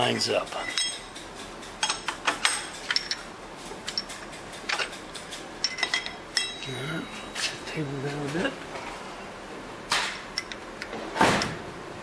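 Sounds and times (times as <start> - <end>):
small steel tools clinking: 0.4 - 3.2, 4.8 - 7.6.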